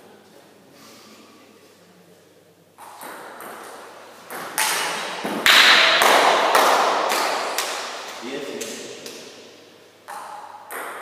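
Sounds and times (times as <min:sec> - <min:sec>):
ping pong ball clicking: 0:10.1 - 0:11.0.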